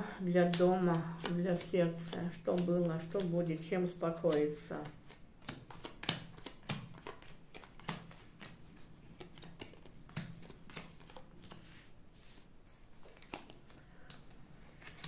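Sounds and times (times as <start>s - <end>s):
playing cards snapping on a mat: 5.4s - 11.6s, 13.2s - 14.2s.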